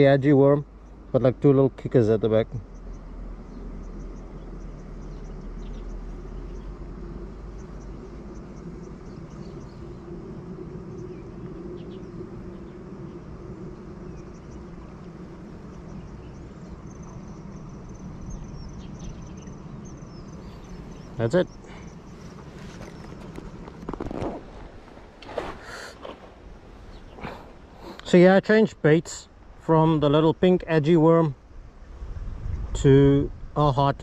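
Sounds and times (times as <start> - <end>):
high insect trill: 0.0 - 34.0
insects chirping: 0.0 - 34.0.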